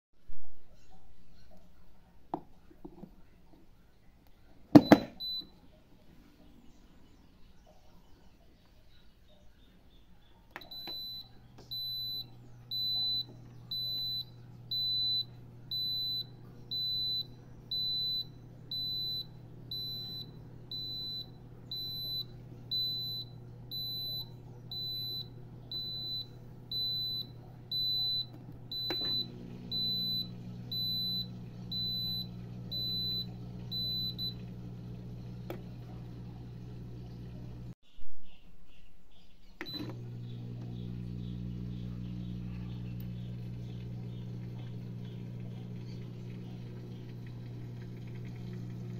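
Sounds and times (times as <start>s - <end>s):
low steady hum: 10.5s - 37.8s, 39.2s - 48.9s.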